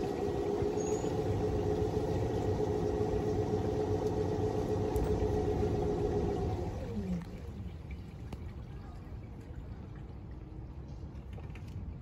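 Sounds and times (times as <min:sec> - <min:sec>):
small boat motor humming: 0:00.0 - 0:08.3.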